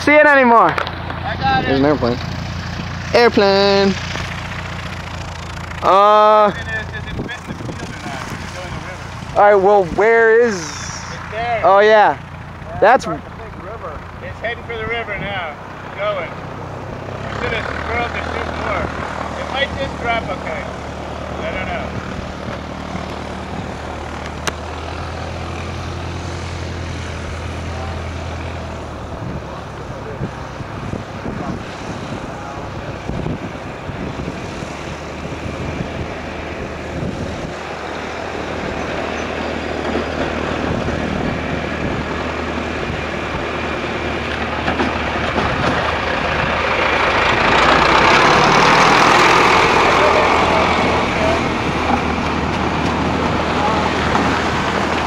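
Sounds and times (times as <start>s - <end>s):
low engine drone: 0.0s - 55.0s
rushing noise: 14.4s - 55.0s.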